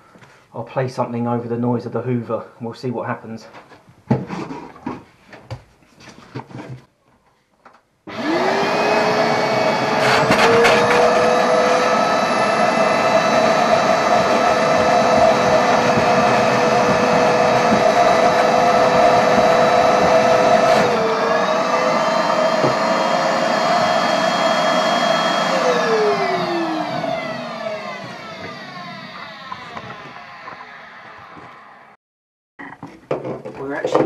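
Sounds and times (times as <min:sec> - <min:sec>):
motor winding down whine: 0:08.1 - 0:32.0
vacuum cleaner running: 0:08.1 - 0:32.0.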